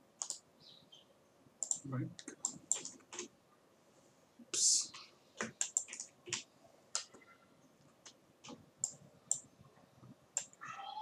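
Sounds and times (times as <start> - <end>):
computer mouse clicking: 0.2 - 0.4, 1.6 - 3.3, 5.4 - 7.2, 8.0 - 9.5, 10.4 - 10.6.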